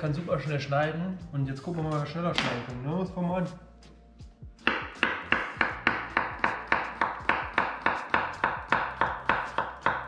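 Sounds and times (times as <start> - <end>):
knife chopping on wooden board: 4.6 - 10.0.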